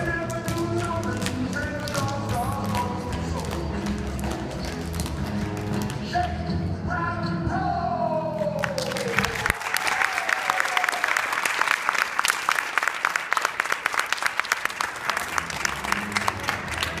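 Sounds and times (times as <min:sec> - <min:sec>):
recorded song music: 0:00.0 - 0:09.5
audience applause: 0:08.6 - 0:17.0.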